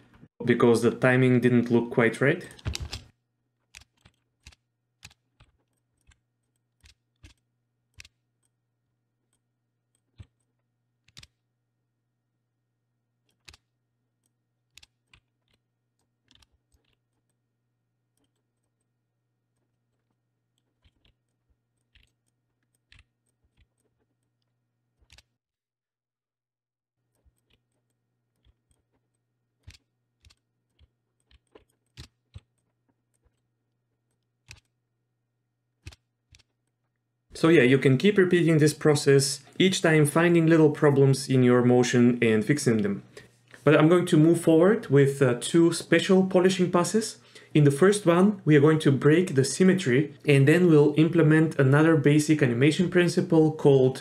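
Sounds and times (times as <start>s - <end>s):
mouse clicks: 34.1s - 34.7s.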